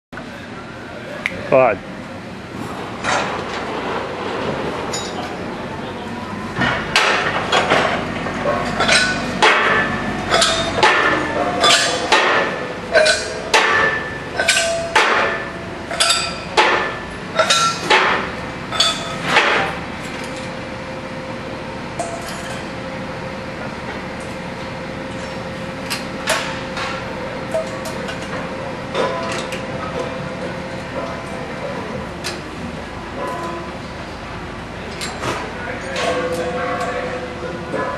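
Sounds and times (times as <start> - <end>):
steady background hum: 0.2 - 37.9
gas cylinders clinking: 6.6 - 20.7, 22.0 - 22.8.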